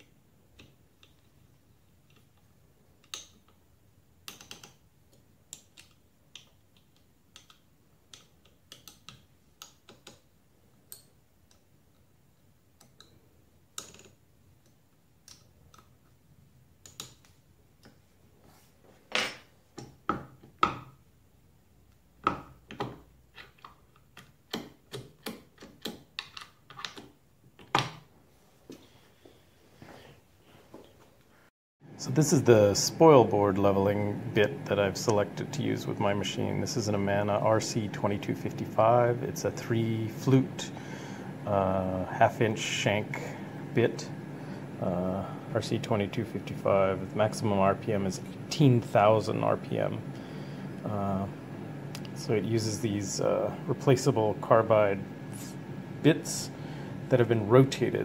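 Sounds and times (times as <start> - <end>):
hex key clicking in bolts: 4.2 - 4.8, 5.5 - 10.2.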